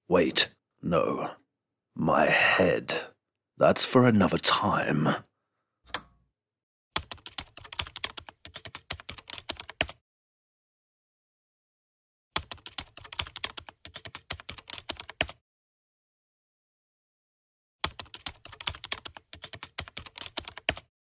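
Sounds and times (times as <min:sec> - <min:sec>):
rapid keyboard typing: 0:07.0 - 0:10.0, 0:12.4 - 0:15.4, 0:17.8 - 0:20.9.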